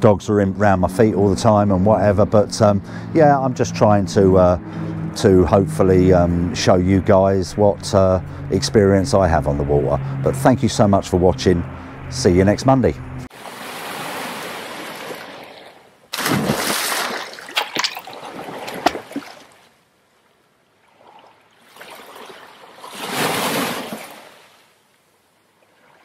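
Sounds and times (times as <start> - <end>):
water lapping against boat hull: 14.4 - 19.7.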